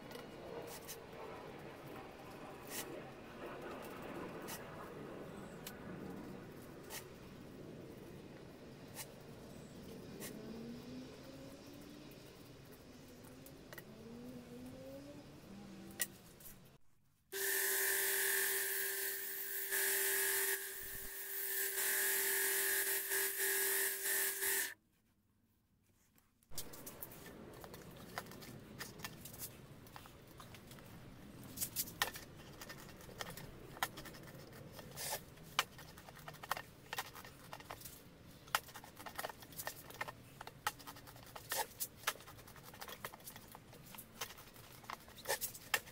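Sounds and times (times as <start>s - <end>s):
electric belt sander running: 17.4s - 24.8s.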